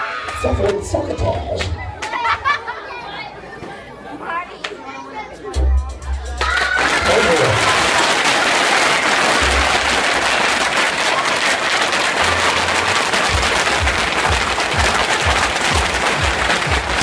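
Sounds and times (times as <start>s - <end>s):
music: 5.3s - 8.0s, 9.1s - 10.6s, 11.7s - 17.0s.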